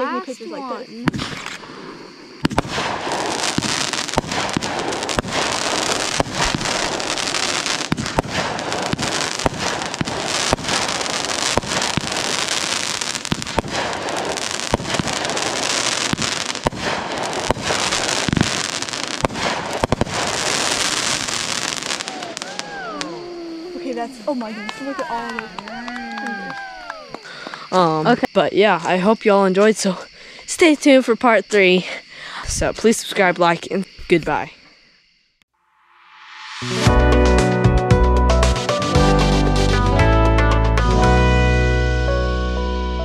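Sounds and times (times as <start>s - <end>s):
fireworks hiss: 0.0s - 25.2s
fireworks bangs and pops: 0.9s - 22.8s.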